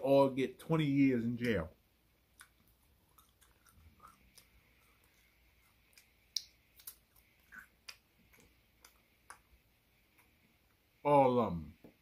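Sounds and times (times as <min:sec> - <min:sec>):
mouth clicks and chewing smacks: 0:02.3 - 0:09.6.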